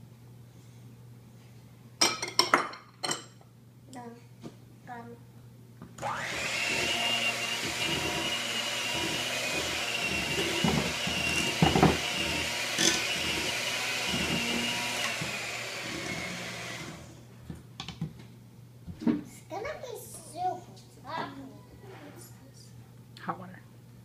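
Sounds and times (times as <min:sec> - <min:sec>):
electric hand mixer running: 0:06.0 - 0:17.2.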